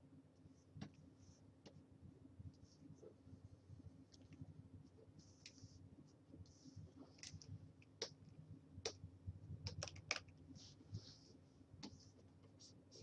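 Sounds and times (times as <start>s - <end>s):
low computer hum: 0.0s - 13.0s
stylus strokes on graphics tablet: 5.0s - 7.2s, 10.5s - 13.0s.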